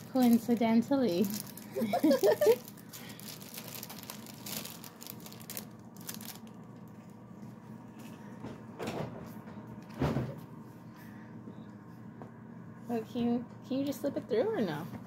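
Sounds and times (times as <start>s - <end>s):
packaging crinkling and clicking: 0.0s - 7.1s.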